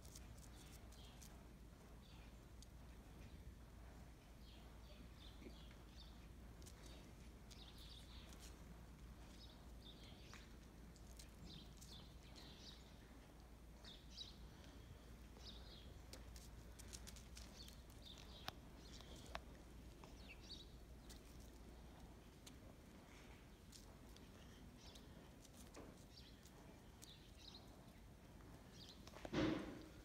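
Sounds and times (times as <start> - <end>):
rustles: 0.0 - 30.0
small birds chirping: 0.0 - 30.0.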